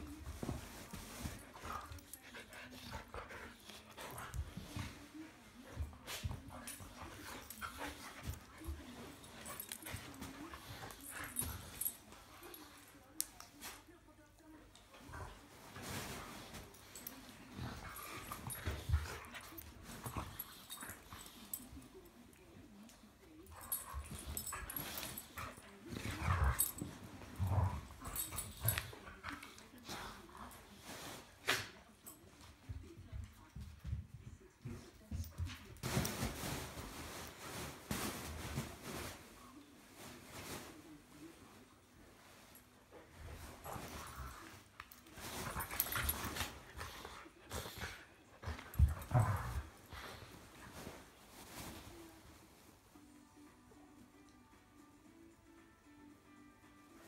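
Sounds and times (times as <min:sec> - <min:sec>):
dogs scuffling: 0:00.0 - 0:13.9, 0:15.0 - 0:21.9, 0:23.4 - 0:53.1
dogs growling while play-fighting: 0:23.7 - 0:30.3, 0:45.3 - 0:50.5.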